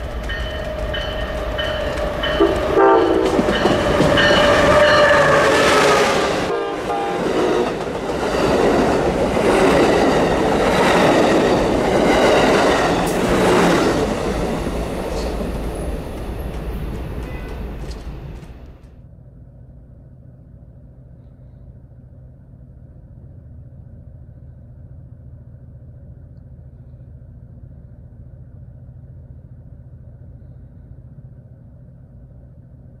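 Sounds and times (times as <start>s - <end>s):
freight train rumbling: 0.0s - 18.9s.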